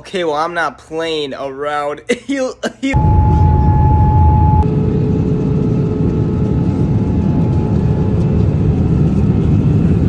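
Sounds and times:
airliner cabin engine and airflow noise: 2.9 - 10.0.

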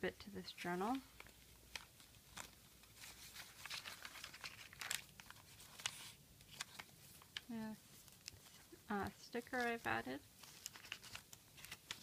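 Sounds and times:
paper pages rustling and crackling: 0.9 - 12.0.

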